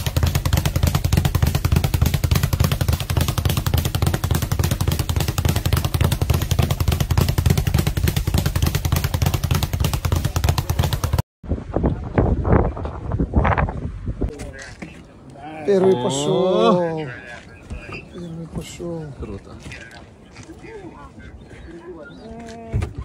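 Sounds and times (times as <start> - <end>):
speed bag rattling: 0.0 - 11.2.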